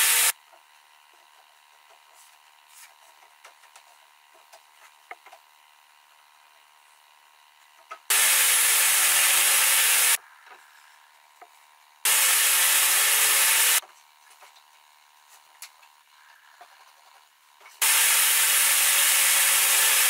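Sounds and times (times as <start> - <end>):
table saw cutting wood: 0.0 - 0.3, 8.1 - 10.2, 12.1 - 13.8, 17.8 - 20.0.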